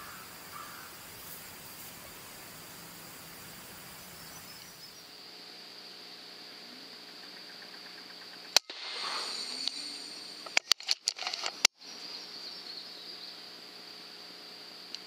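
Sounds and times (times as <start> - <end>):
high-pitched insect hum: 0.0 - 15.0
air rifle firing crack: 8.6 - 10.1.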